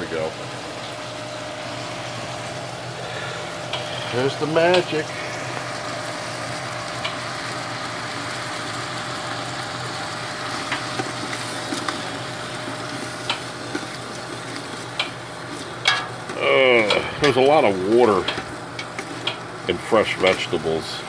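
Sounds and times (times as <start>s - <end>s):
vegetables sizzling in hot oil: 0.5s - 20.7s.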